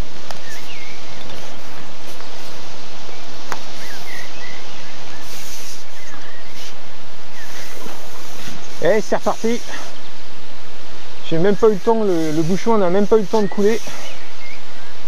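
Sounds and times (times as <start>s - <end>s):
loud outdoor background noise: 0.0s - 15.0s
short bird chirps: 3.8s - 8.8s.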